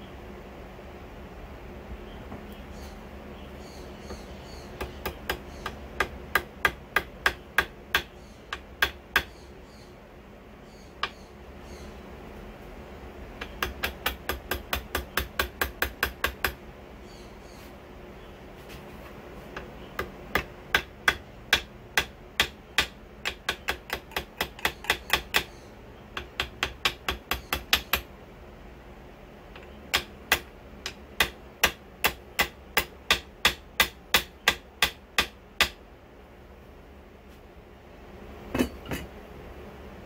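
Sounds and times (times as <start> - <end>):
hammer tapping on metal tube: 4.8 - 9.3, 13.4 - 16.6, 19.6 - 25.5, 26.2 - 28.1, 29.6 - 35.8.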